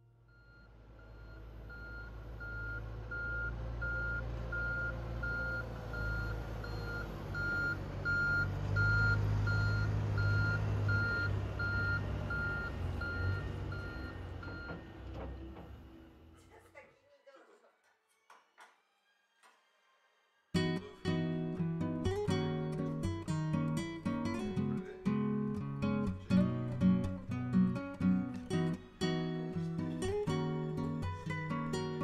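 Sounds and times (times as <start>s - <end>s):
diesel engine running: 0.2s - 16.4s
reversing alarm beeping: 0.3s - 15.2s.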